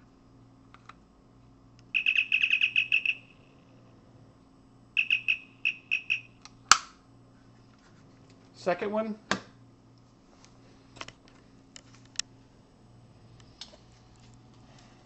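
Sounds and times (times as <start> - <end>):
high electronic chirps: 2.0 - 3.6, 5.0 - 6.4.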